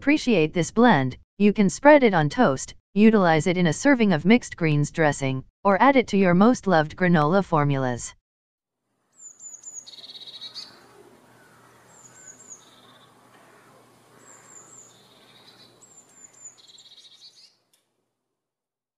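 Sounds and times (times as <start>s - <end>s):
blue tit singing: 9.2s - 17.6s.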